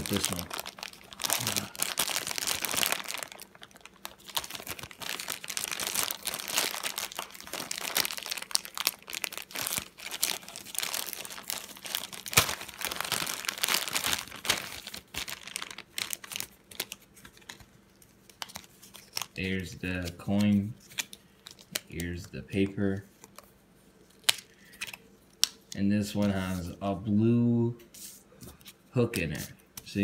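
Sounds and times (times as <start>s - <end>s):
plastic bag crinkling: 0.0s - 19.5s.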